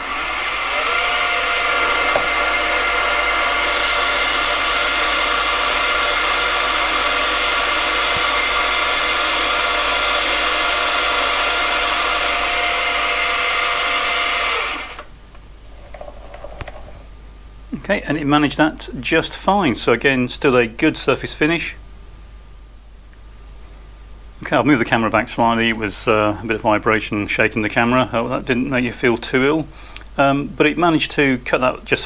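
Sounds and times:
lathe motor whining: 0:00.0 - 0:15.1.

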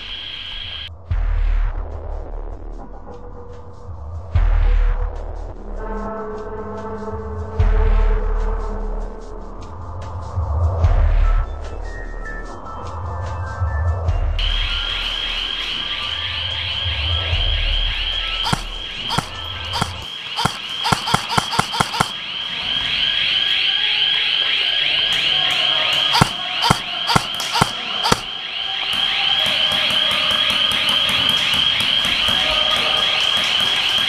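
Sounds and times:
airsoft guns firing: 0:18.4 - 0:22.2, 0:26.0 - 0:28.4
high-pitched warbling alarm tone: 0:18.4 - 0:22.2, 0:26.0 - 0:28.3.

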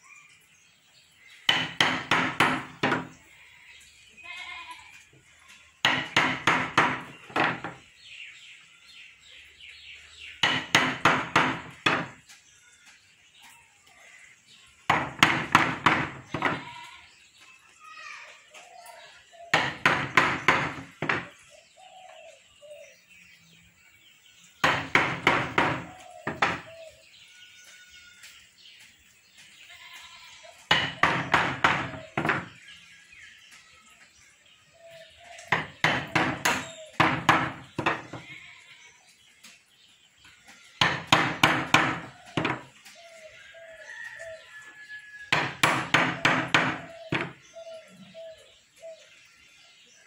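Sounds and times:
mallet striking chisel into wood: 0:01.5 - 0:03.1, 0:05.8 - 0:07.8, 0:10.4 - 0:12.2, 0:14.9 - 0:16.6, 0:19.5 - 0:21.3, 0:24.6 - 0:26.7, 0:30.7 - 0:32.5, 0:35.5 - 0:38.2, 0:45.3 - 0:47.3.

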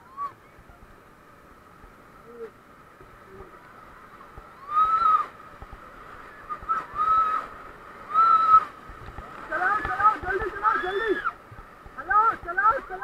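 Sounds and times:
faint rushing water: 0:00.0 - 0:13.0
people whooping and yelling: 0:04.6 - 0:05.4, 0:06.4 - 0:08.8, 0:10.5 - 0:11.4.

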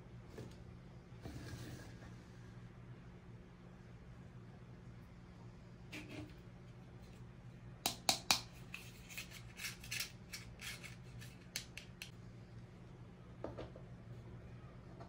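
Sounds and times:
faint low hum: 0:08.4 - 0:15.0.

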